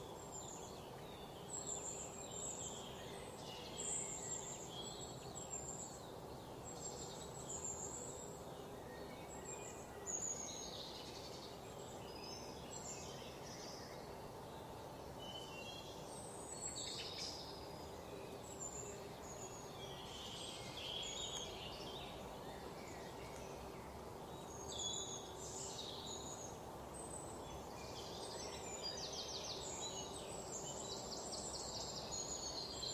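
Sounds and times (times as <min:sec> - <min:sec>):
bird calls and chirps: 0:00.0 - 0:32.9
steady background hiss: 0:00.0 - 0:32.9.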